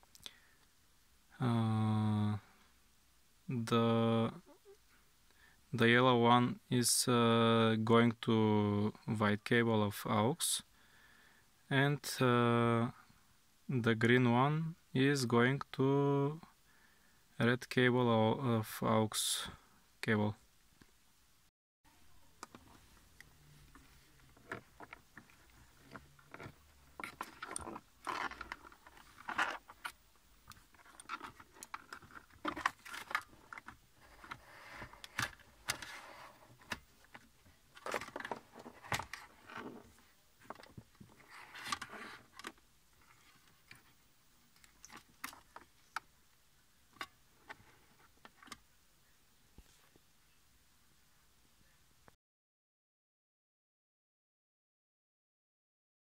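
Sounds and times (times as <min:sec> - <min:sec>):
plastic trim scraping and rattling: 0:24.3 - 0:39.9.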